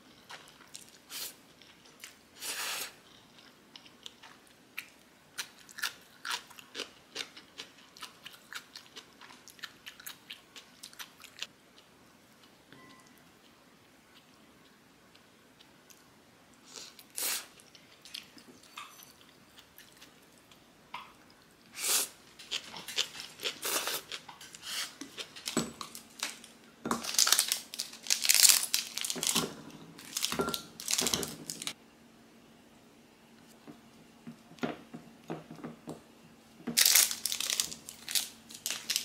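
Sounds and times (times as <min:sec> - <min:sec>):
plastic wrappers crinkling and tearing: 0:25.2 - 0:31.8, 0:36.8 - 0:39.0.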